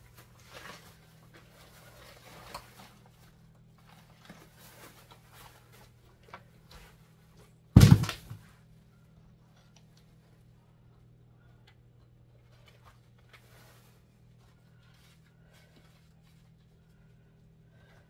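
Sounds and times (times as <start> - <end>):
loud thump: 7.8 - 8.4.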